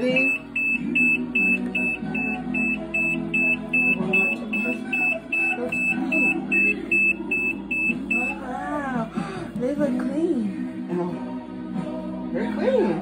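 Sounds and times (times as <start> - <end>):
washing machine high beeps: 0.0 - 8.4.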